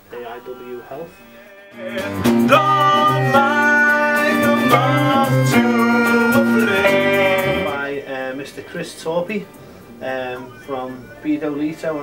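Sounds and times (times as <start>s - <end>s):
man singing: 1.4s - 7.9s.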